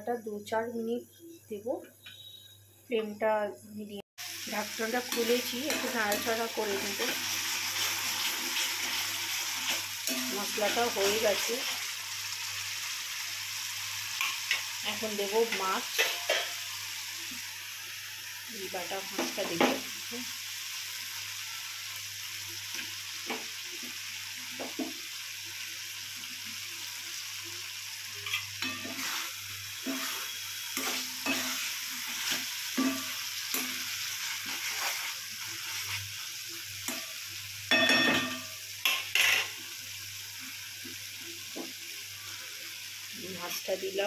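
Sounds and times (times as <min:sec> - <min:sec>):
food sizzling in oil: 0:04.2 - 0:44.0
spatula scraping pan: 0:05.0 - 0:11.5, 0:28.2 - 0:36.1.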